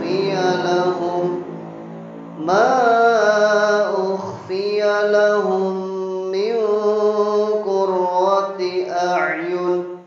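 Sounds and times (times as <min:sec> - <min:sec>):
man chanting: 0:00.0 - 0:01.7, 0:02.4 - 0:10.0.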